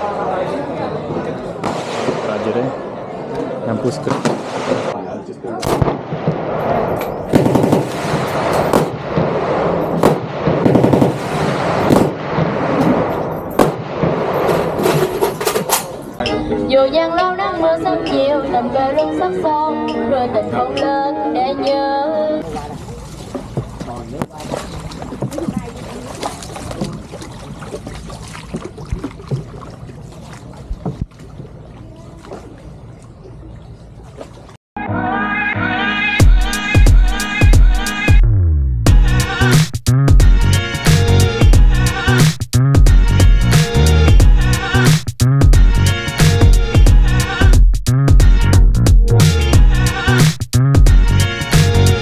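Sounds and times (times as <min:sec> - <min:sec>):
single gunshots: 0:01.6 - 0:02.7, 0:04.0 - 0:05.0, 0:05.6 - 0:14.9
automatic gunfire bursts: 0:07.3 - 0:09.4, 0:10.0 - 0:13.0
oar paddling water: 0:22.4 - 0:34.6
water sloshing and splashing: 0:22.4 - 0:34.6.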